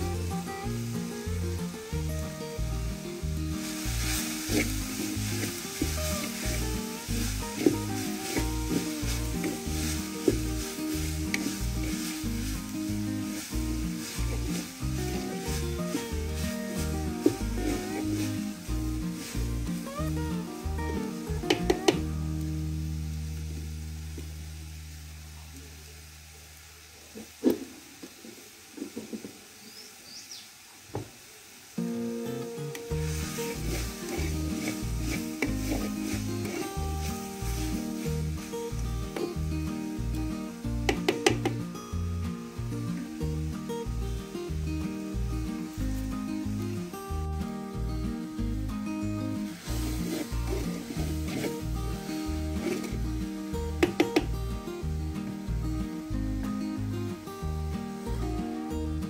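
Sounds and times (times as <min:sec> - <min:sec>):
background music with beat: 0:00.0 - 0:22.8, 0:32.6 - 0:59.0
fire crackling: 0:00.0 - 0:59.0
greens sizzling in a pot: 0:00.0 - 0:59.0
bird chirps: 0:29.6 - 0:30.5
wooden spoon scraping pot: 0:33.1 - 0:37.9, 0:49.7 - 0:51.6, 0:52.5 - 0:53.1.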